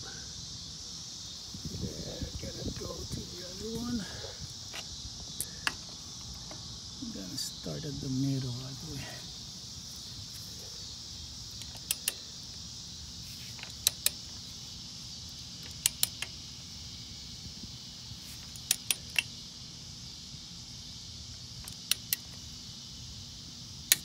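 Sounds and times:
wrench clicking on bolts: 11.6 - 12.2, 13.6 - 14.2, 15.6 - 16.3, 18.5 - 19.3.

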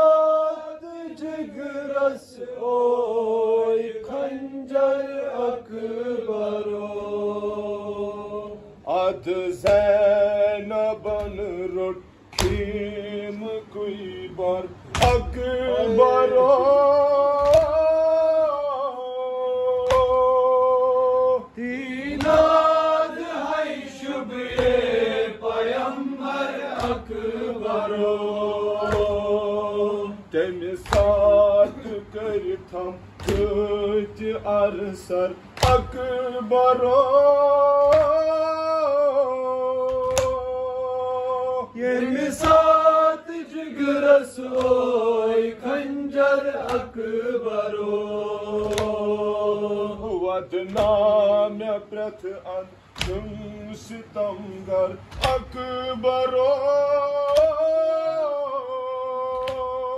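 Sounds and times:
male voices chanting a lament: 0.0 - 59.9
chest-beating slaps: 9.6 - 10.0, 12.3 - 12.9, 14.8 - 15.8, 17.4 - 18.3, 19.8 - 20.4, 22.0 - 23.2, 24.4 - 25.2, 26.7 - 27.8, 28.8 - 29.4, 30.8 - 31.9, 33.1 - 33.8, 35.5 - 36.2, 37.8 - 38.3, 39.8 - 40.6, 42.3 - 42.9, 44.4 - 45.0, 46.6 - 47.1, 48.5 - 49.2, 50.7 - 51.2, 52.9 - 53.4, 55.0 - 55.7, 57.3 - 57.7, 59.3 - 59.8.

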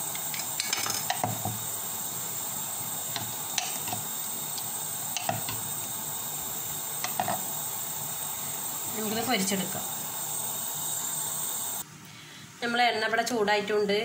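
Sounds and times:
steady hiss: 0.0 - 13.9
knife tapping on a plate: 5.2 - 5.6.

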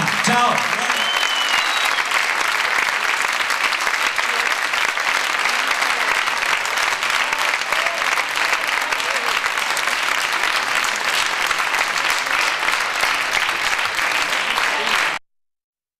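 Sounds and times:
audience applauding: 0.0 - 15.2
faint crowd voices: 4.1 - 15.2.

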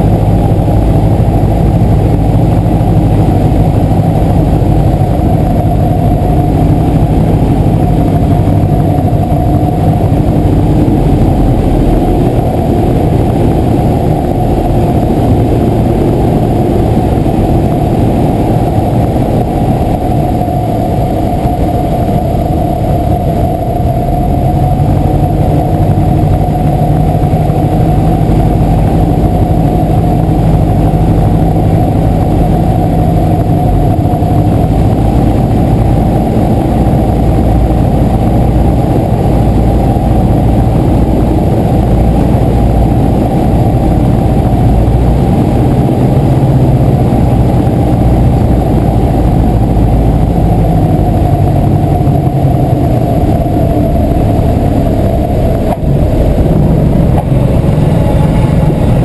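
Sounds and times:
airplane engine and propeller: 0.0 - 59.0.

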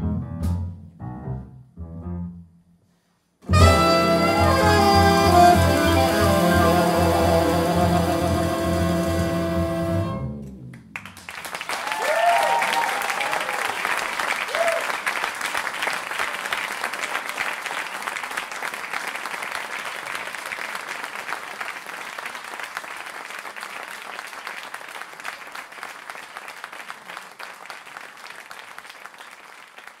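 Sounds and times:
audience applauding: 10.8 - 30.0.

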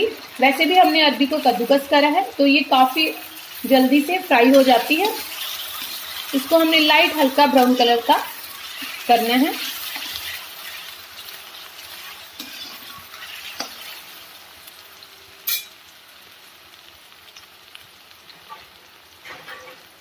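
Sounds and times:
food sizzling in hot oil: 0.0 - 20.0
spatula stirring and scraping: 2.8 - 14.2
sharp clink: 15.5 - 15.8.

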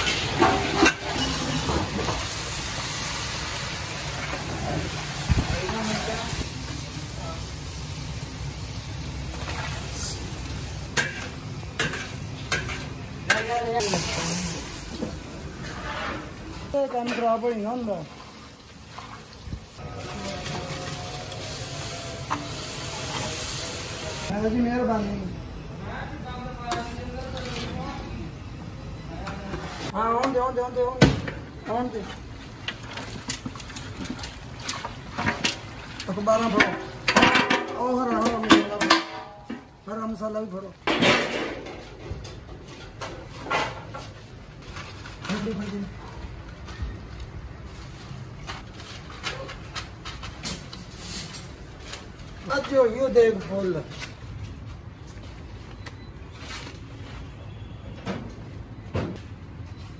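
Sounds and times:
chicken sizzling in pot: 0.0 - 13.2, 13.8 - 15.4, 18.1 - 24.4.

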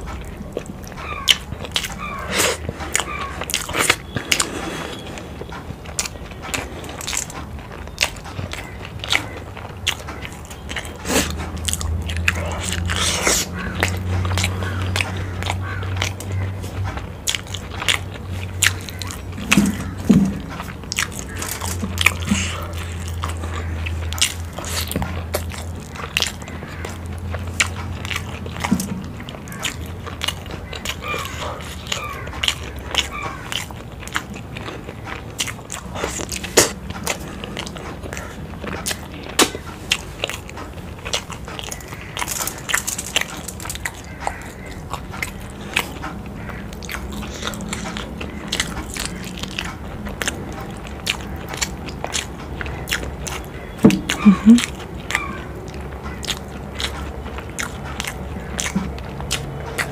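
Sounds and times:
close-miked chewing: 0.0 - 59.9
wet mouth clicks and smacks: 17.0 - 59.9.

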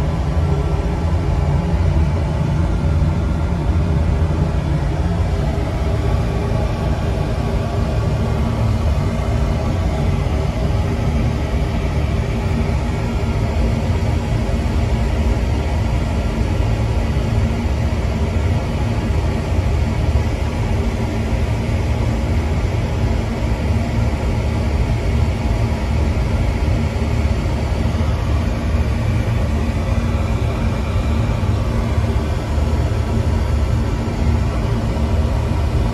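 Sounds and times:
low hum: 0.0 - 35.9
oil burner rumbling: 0.0 - 35.9.

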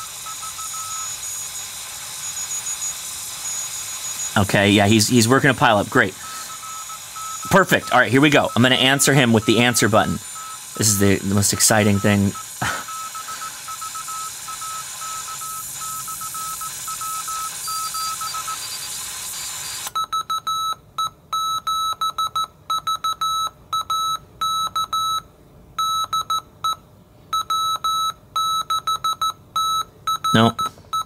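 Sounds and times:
faint morse code signal: 0.0 - 19.0, 19.6 - 25.2, 25.8 - 26.8, 27.4 - 31.0
morse code beeps: 0.0 - 19.0, 19.6 - 25.2, 25.8 - 31.0
radio receiver hiss: 0.0 - 20.0.

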